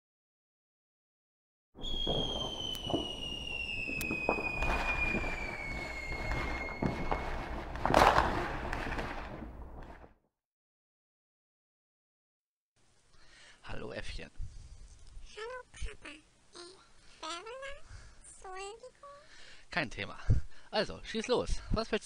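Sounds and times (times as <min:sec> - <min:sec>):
firework whistle falling in pitch: 0:01.8 - 0:08.5
firework bang: 0:01.8 - 0:10.0
fireworks crackling and popping: 0:01.8 - 0:10.1.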